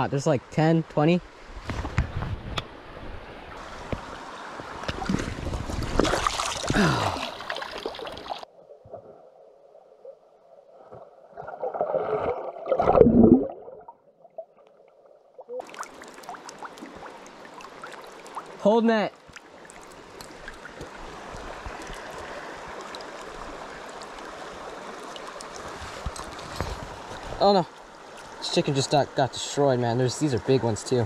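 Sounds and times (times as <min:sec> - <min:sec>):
creek water splashing: 0:03.6 - 0:08.5, 0:10.8 - 0:29.2
bubbles gurgling: 0:11.4 - 0:14.5.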